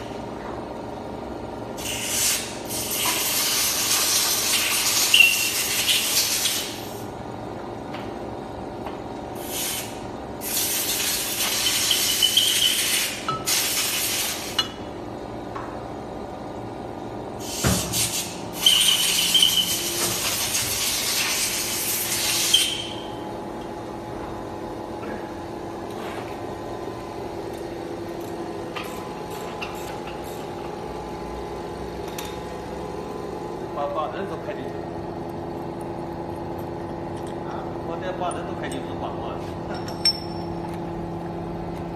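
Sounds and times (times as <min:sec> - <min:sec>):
compressed air hissing: 0:01.8 - 0:07.0, 0:09.4 - 0:14.6, 0:17.4 - 0:23.0.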